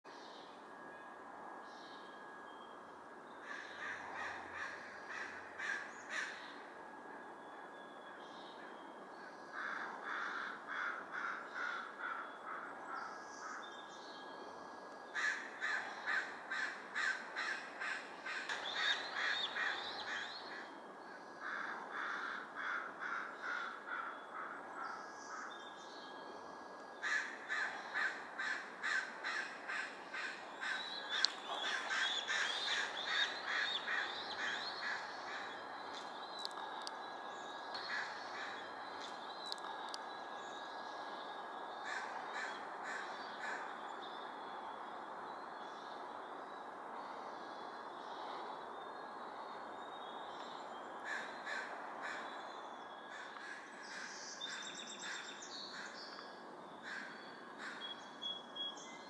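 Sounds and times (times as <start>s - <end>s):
crows cawing: 3.4s - 6.4s, 9.5s - 12.8s, 15.2s - 20.7s, 21.4s - 25.5s, 27.0s - 35.6s, 37.8s - 38.6s, 41.8s - 43.7s, 51.0s - 52.4s, 53.1s - 54.2s, 56.8s - 57.8s.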